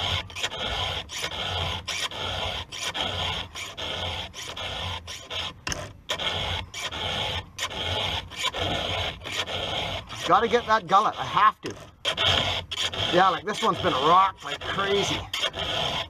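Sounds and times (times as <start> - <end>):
file rasping on chainsaw chain: 0.0 - 16.0.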